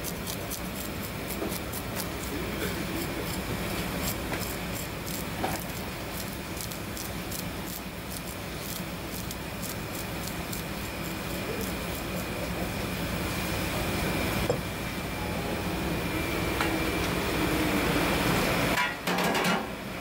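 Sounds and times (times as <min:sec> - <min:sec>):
knife scraping fish scales: 0:00.0 - 0:12.3
steady background hum: 0:00.0 - 0:20.0.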